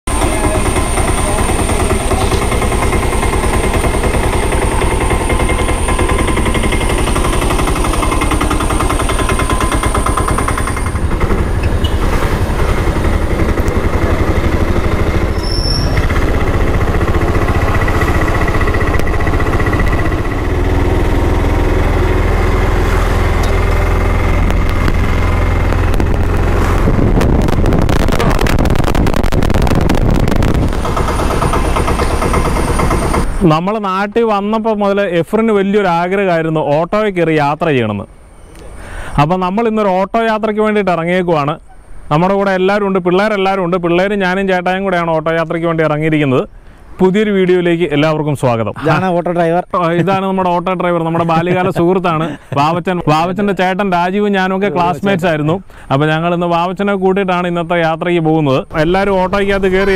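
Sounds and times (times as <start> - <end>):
small engine puttering: 0.1 - 33.6, 49.8 - 55.9.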